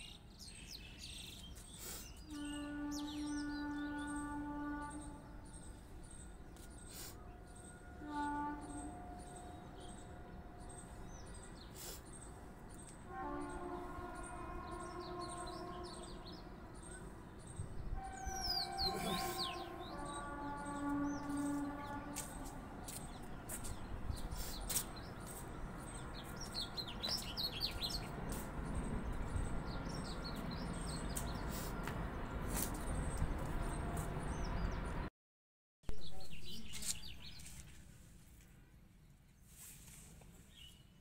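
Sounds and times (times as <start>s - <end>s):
small birds chirping: 13.8s - 34.8s.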